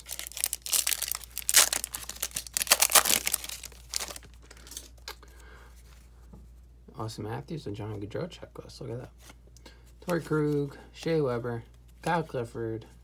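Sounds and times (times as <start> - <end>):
foil wrapper crinkling: 0.0 - 4.9.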